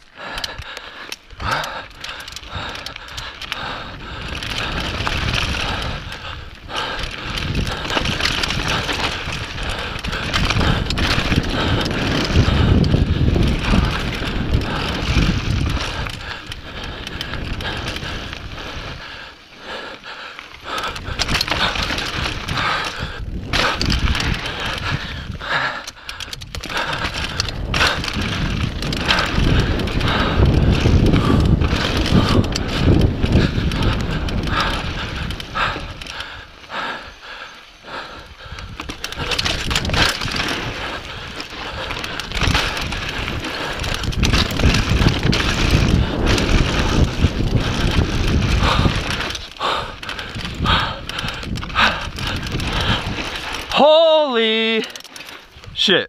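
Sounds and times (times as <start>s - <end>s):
bike rattling: 0.0s - 56.0s
bike tyres crunching over gravel: 0.0s - 56.0s.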